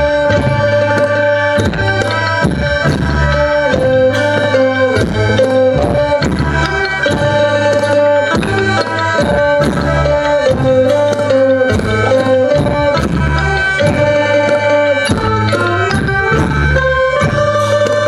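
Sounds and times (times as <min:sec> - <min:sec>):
melody of long held notes: 0:00.0 - 0:18.0
drum beat: 0:01.6 - 0:14.4.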